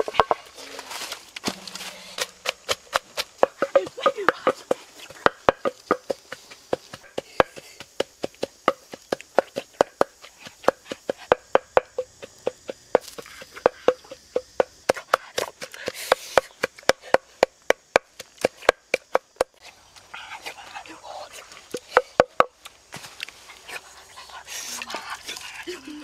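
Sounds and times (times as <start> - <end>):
sharp hollow wooden knocks: 1.4 - 19.6, 21.7 - 22.6.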